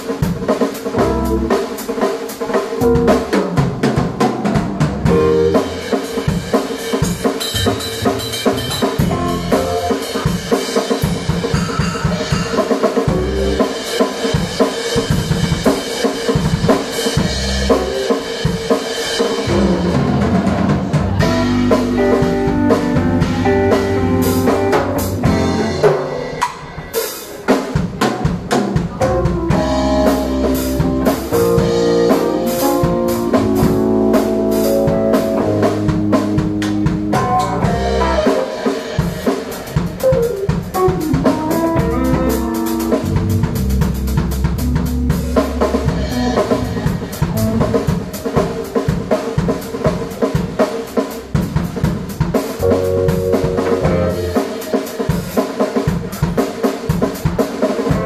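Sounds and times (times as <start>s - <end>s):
drum kit: 0.0s - 58.0s
bass guitar notes: 1.0s - 1.6s, 2.8s - 3.9s, 4.7s - 6.0s, 8.6s - 10.3s, 13.1s - 13.8s, 17.2s - 18.0s, 19.4s - 26.3s, 28.9s - 38.5s, 40.8s - 48.2s, 52.6s - 54.4s
electric guitar notes: 5.1s - 5.9s, 19.5s - 26.8s, 52.6s - 54.6s.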